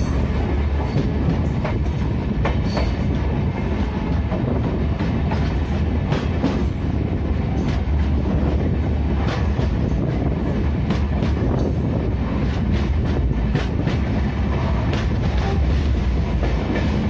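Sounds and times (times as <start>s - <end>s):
rail joint clacks: 0.0s - 17.0s
train wheels rumbling on rail: 0.0s - 17.0s.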